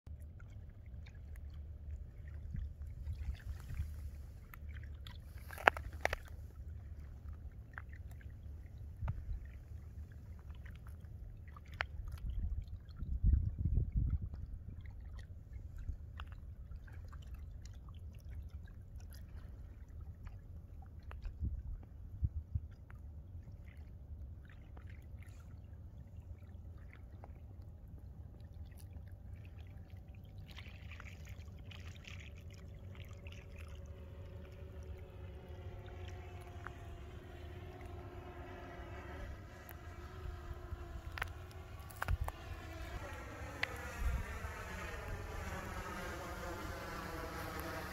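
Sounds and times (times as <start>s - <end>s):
small waves lapping at shore: 0.1s - 47.9s
wind rumbling on microphone: 2.1s - 7.1s, 8.5s - 10.5s, 11.2s - 16.8s, 21.1s - 22.9s, 33.5s - 47.9s.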